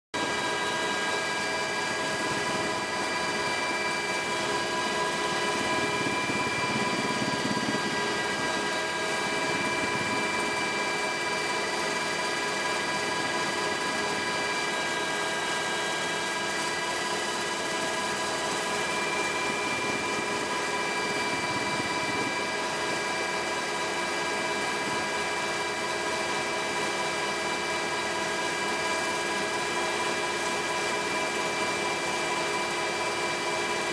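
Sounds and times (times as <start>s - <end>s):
helicopter cabin rushing noise: 0.2s - 24.0s
steady whining tones: 0.2s - 33.9s.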